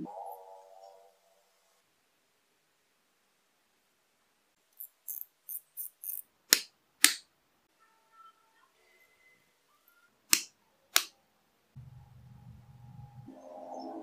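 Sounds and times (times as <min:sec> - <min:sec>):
pliers snapping wooden pins: 0:10.3 - 0:11.1.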